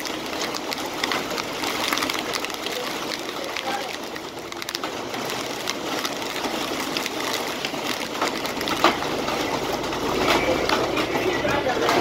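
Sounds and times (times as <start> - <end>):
heavy wind-driven rain: 0.0 - 12.0.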